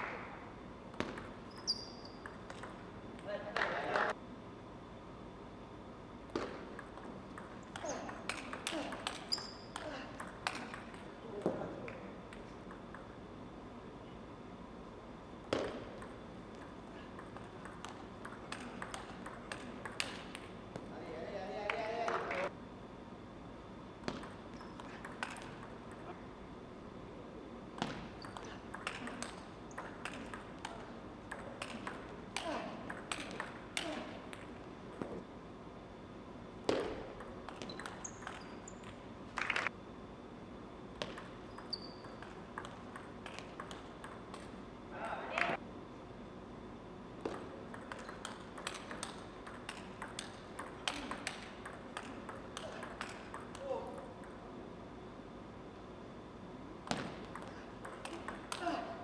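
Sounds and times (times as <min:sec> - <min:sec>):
table tennis ball clicking: 0:00.9 - 0:02.9, 0:06.4 - 0:11.2, 0:12.3 - 0:13.2, 0:15.5 - 0:20.8, 0:24.1 - 0:26.1, 0:27.8 - 0:34.5, 0:36.7 - 0:39.6, 0:41.0 - 0:44.6, 0:47.2 - 0:54.4, 0:56.8 - 0:58.6
shoes squeaking on floor: 0:01.5 - 0:02.2, 0:41.5 - 0:42.2.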